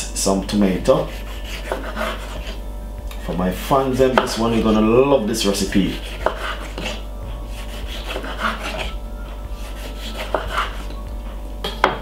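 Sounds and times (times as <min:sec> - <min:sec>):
knife slicing tomato on wood: 0:01.2 - 0:03.4, 0:05.9 - 0:09.0, 0:09.6 - 0:11.0.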